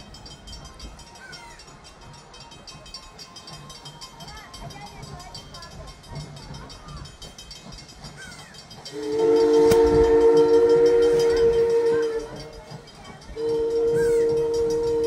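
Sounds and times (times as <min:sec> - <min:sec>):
steam locomotive chime whistle: 0:00.0 - 0:15.0.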